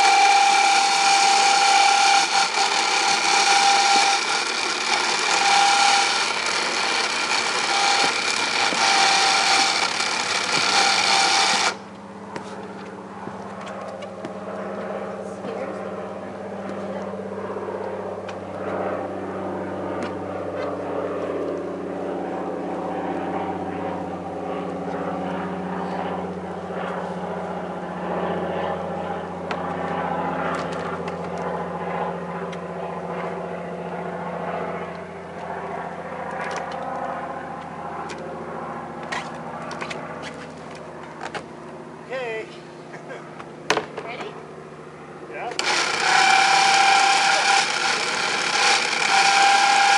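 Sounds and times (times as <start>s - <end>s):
small engine idling: 0.0s - 12.0s, 45.4s - 49.9s.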